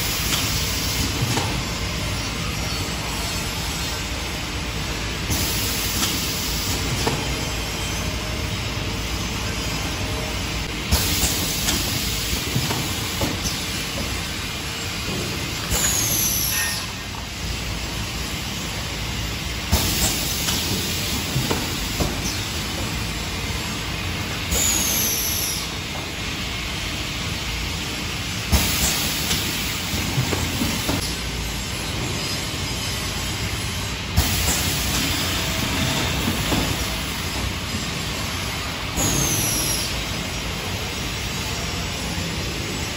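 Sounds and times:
hiss of air: 5.2s - 7.4s, 10.9s - 18.9s, 19.6s - 31.2s, 32.4s - 42.6s.

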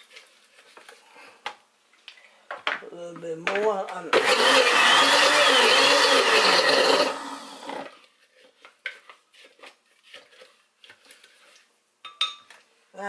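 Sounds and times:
blender running: 4.1s - 8.0s.

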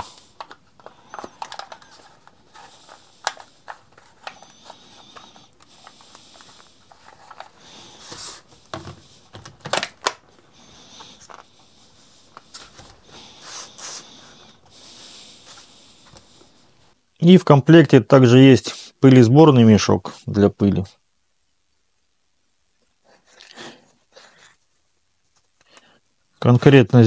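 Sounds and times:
plastic clicks and rubs: 0.0s - 7.6s.

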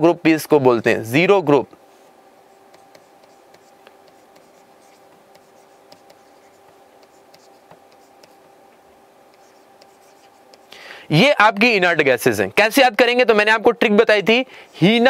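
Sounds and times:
low electrical hum: 0.0s - 15.0s
stylus scratching on tablet: 0.6s - 10.7s, 14.3s - 15.0s.

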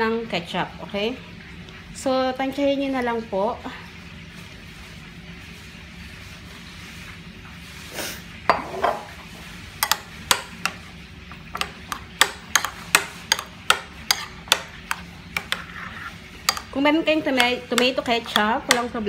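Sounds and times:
spoon clinking against ceramic bowl: 9.8s - 10.8s, 11.6s - 15.7s, 16.4s - 16.8s.

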